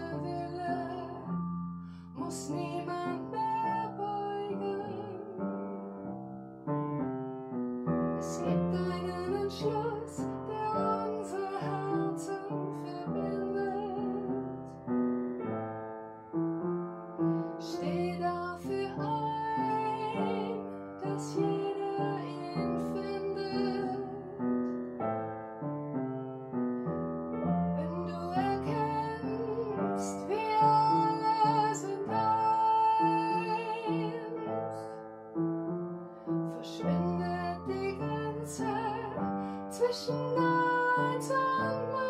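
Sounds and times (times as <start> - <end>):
woman singing with vibrato: 0.0 - 1.3, 2.2 - 5.5, 8.2 - 14.4, 17.6 - 24.4, 27.8 - 34.8, 36.6 - 42.0
upright piano accompaniment: 0.0 - 42.0.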